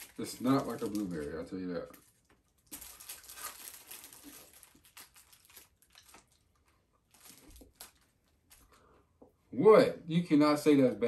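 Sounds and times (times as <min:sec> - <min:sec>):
foil wrapper crinkling: 0:00.0 - 0:08.8.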